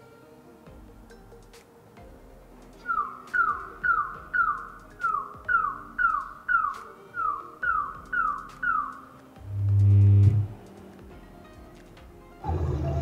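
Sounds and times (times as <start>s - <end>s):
falling tone chirps: 2.8s - 10.5s.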